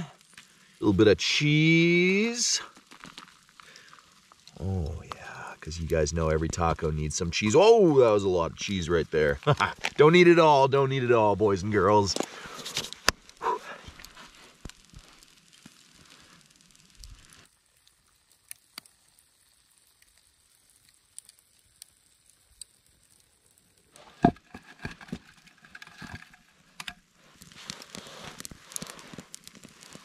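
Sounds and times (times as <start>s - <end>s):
campfire crackling and popping: 0.0s - 30.0s
faint sizzling: 0.0s - 30.0s
rustling of log: 2.4s - 30.0s.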